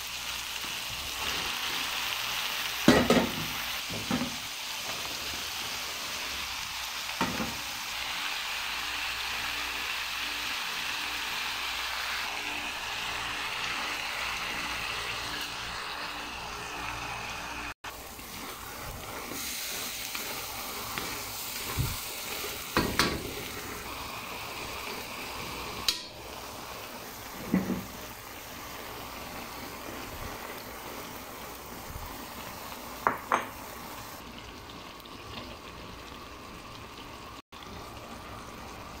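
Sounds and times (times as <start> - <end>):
vegetables sizzling in a wok: 0.0 - 39.0
utensil knocking on pan: 33.0 - 33.6.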